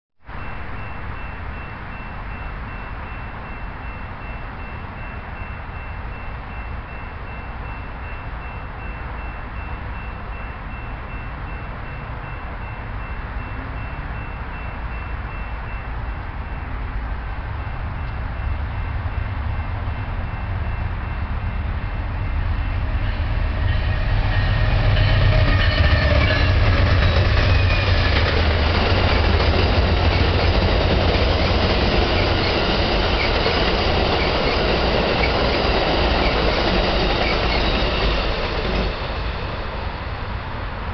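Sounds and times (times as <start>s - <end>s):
locomotive engine rumble: 13.3s - 40.9s
train wheels clattering on rails: 17.6s - 40.9s.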